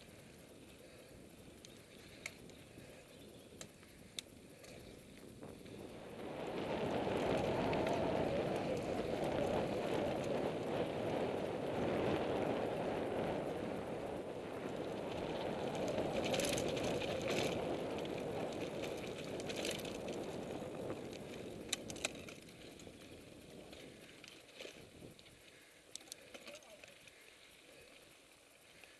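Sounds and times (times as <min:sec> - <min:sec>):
wind buffeting microphone: 0:00.0 - 0:25.4
bike tyres rumbling and rattling: 0:00.0 - 0:28.9
sharp clicks: 0:03.5 - 0:05.2.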